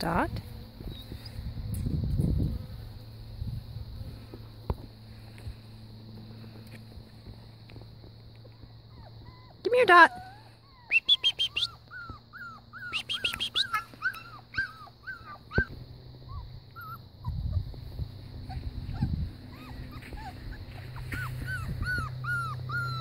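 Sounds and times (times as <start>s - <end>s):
puppies whimpering: 8.8s - 17.4s, 18.4s - 23.0s
puppies yipping: 8.9s - 17.4s, 18.4s - 23.0s.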